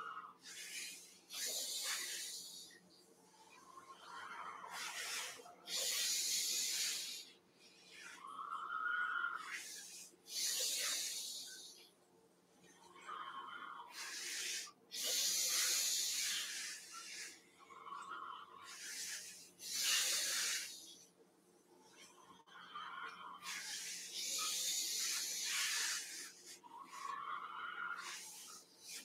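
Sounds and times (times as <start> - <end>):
person breathing deeply: 0.4 - 2.8, 3.5 - 8.2, 9.4 - 12.0, 12.9 - 21.2, 21.9 - 27.2.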